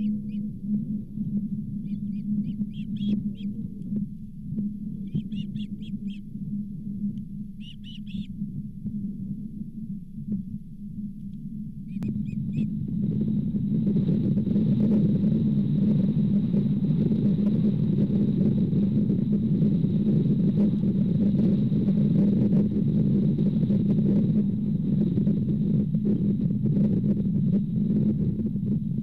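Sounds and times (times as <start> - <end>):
wind buffeting microphone: 0.0 - 29.0
short bird chirps: 1.8 - 3.5, 5.1 - 6.2, 7.6 - 8.3.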